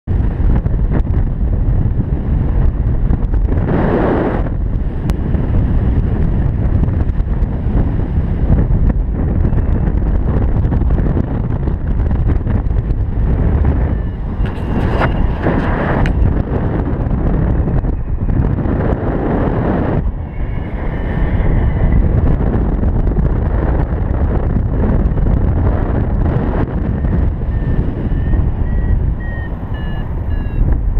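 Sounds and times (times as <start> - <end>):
wind rushing over microphone: 0.0 - 30.9
faint short beeps rising in pitch: 28.2 - 30.6.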